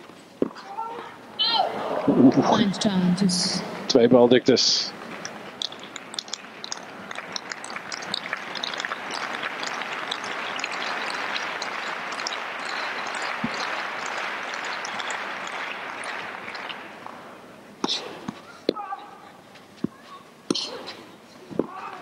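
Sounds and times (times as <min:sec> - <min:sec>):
crowd applauding: 0:05.0 - 0:17.2.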